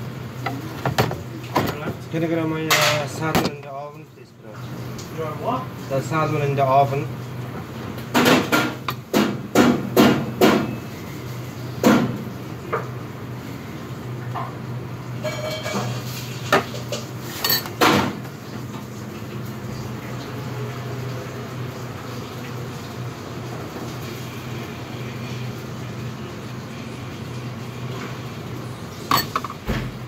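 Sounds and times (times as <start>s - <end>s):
kitchen extraction hood humming: 0.0s - 30.0s
steel cookware squealing: 15.2s - 16.1s, 17.4s - 17.7s, 29.1s - 29.6s.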